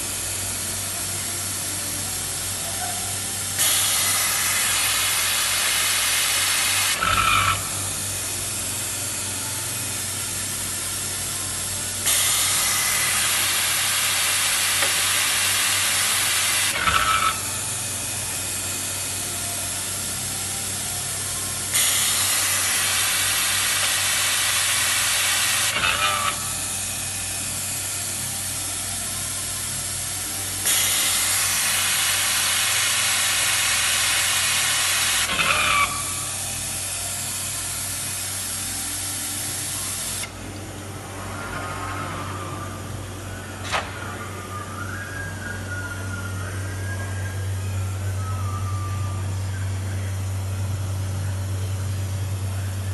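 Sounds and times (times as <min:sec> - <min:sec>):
loud air hiss: 0:03.5 - 0:08.0
low hum: 0:39.8 - 0:52.9.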